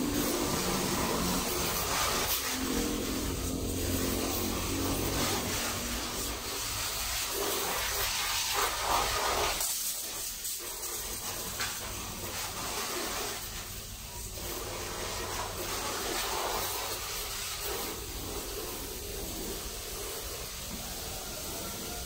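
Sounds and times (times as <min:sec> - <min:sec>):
vacuum cleaner running: 0:00.0 - 0:07.1, 0:17.0 - 0:22.0.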